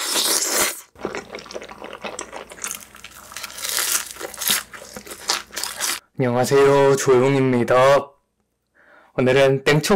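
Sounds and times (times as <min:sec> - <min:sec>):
slurping noodles: 0:00.0 - 0:06.0
wet chewing: 0:00.0 - 0:06.0.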